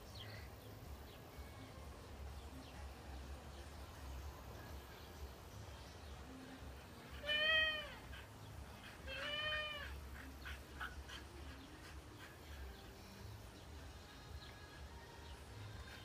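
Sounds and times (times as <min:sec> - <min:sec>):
meow-like animal calls: 0:07.2 - 0:08.0, 0:09.1 - 0:10.0.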